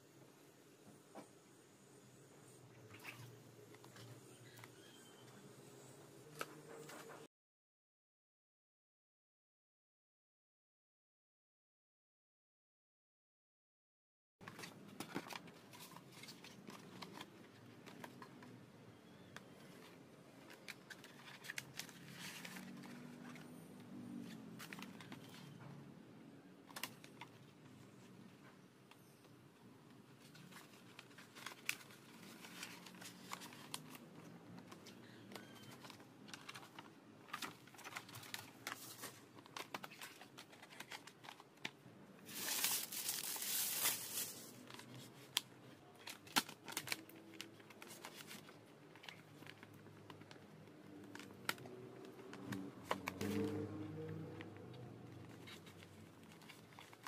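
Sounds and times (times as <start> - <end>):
sticker sheet crinkling: 30.2 - 54.3.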